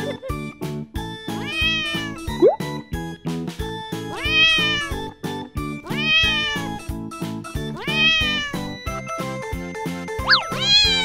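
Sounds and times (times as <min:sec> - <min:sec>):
cat meowing: 0:01.4 - 0:02.4, 0:04.1 - 0:05.1, 0:05.8 - 0:06.8, 0:07.7 - 0:08.8, 0:10.2 - 0:11.0.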